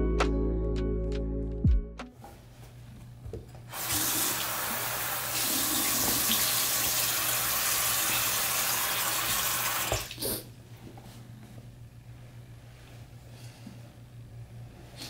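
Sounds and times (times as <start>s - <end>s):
water running into sink: 3.7s - 10.2s.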